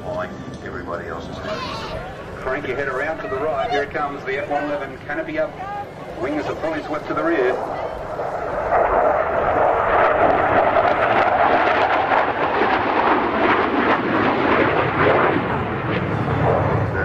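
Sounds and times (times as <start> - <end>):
jet engines roaring in flyby: 0.0 - 17.0.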